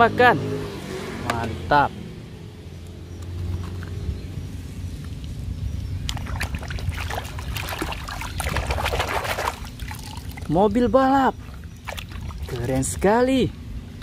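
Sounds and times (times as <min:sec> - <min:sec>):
water splashing and sloshing: 0:03.2 - 0:13.2.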